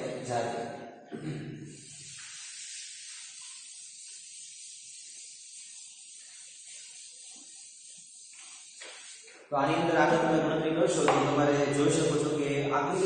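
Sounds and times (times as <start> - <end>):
duster rubbing on chalkboard: 1.7 - 12.3
steady hiss: 1.7 - 13.0.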